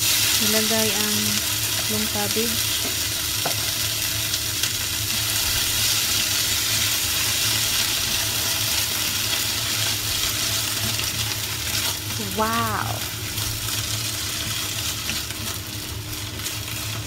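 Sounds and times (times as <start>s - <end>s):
cabbage sizzling in hot oil: 0.0s - 17.0s.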